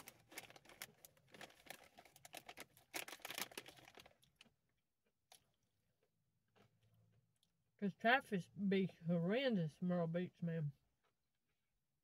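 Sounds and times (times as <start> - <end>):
chip bag crackling: 0.0 - 4.5.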